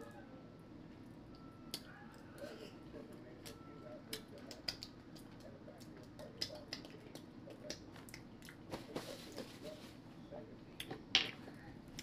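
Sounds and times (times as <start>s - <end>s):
mouth chewing clicks and smacks: 4.1s - 8.7s
paper napkin rustling: 8.7s - 10.0s.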